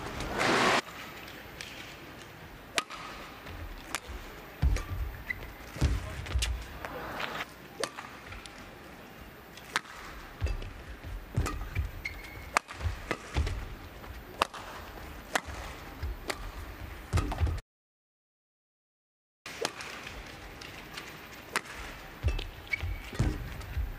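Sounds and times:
racket striking shuttlecock: 0:02.7 - 0:06.6, 0:07.8 - 0:08.5, 0:09.6 - 0:17.6, 0:19.5 - 0:23.8
footfalls thudding on court: 0:03.5 - 0:06.8, 0:21.7 - 0:23.9.

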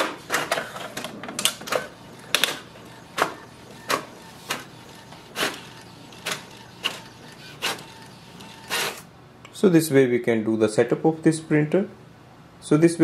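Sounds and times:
printer mechanism swishes and clicks: 0:00.0 - 0:09.1.

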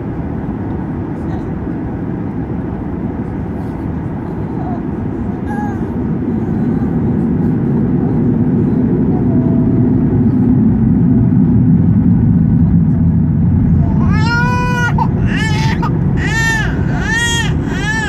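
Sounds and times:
baby crying: 0:13.8 - 0:18.0.

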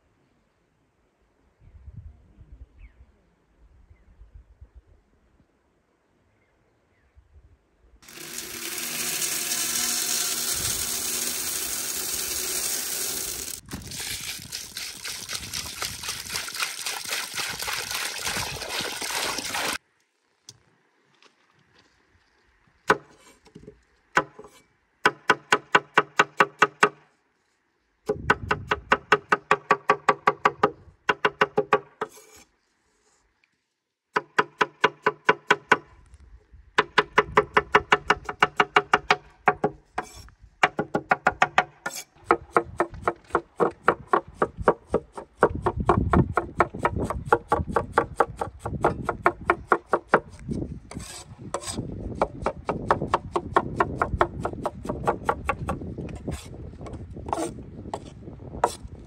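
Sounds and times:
peas poured into metal pan: 0:08.0 - 0:19.8.

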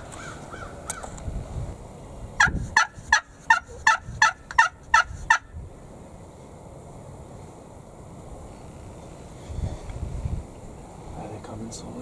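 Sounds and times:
turkey yelping: 0:02.4 - 0:05.4.

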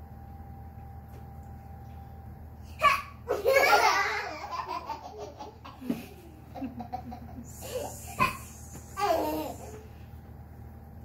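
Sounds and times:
girl laughing: 0:03.3 - 0:09.8.

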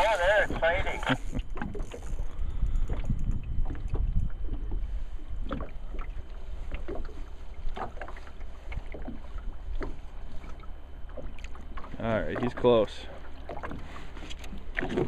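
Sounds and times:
knocks and splashes at hull: 0:00.0 - 0:02.1, 0:02.8 - 0:15.0
wind rumbling on microphone: 0:00.0 - 0:10.5
water lapping against boat: 0:00.0 - 0:15.0.

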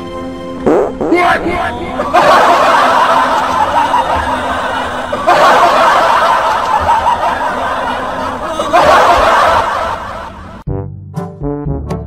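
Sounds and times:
crowd laughing: 0:01.2 - 0:10.6.

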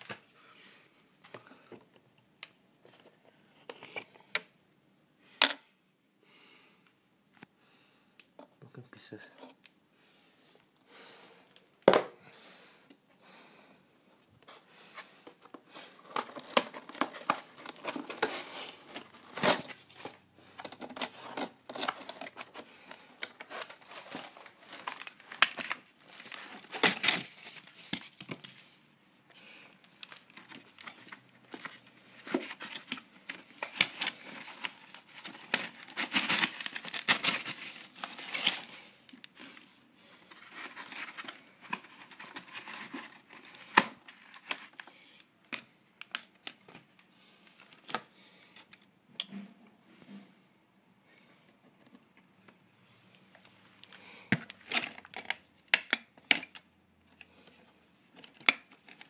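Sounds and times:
plastic packaging crinkling: 0:15.3 - 0:28.6, 0:29.7 - 0:47.0, 0:53.3 - 0:56.6.

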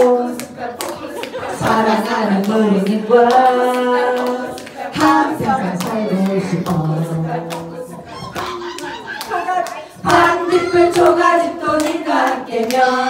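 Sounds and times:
women singing a cappella: 0:00.0 - 0:13.0
hand claps: 0:11.8 - 0:12.9.

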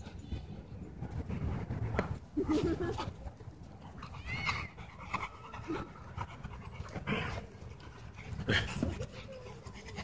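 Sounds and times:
dog panting: 0:04.7 - 0:10.0.

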